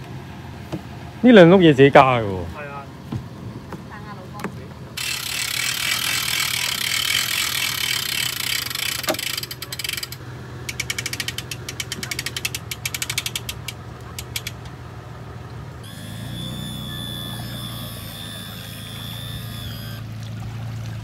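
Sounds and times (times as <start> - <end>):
winch ratchet clicking: 5.0 - 14.8, 15.8 - 20.0.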